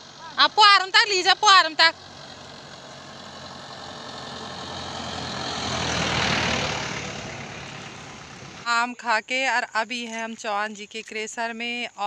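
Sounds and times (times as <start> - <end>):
truck driving past: 0.0 - 8.7.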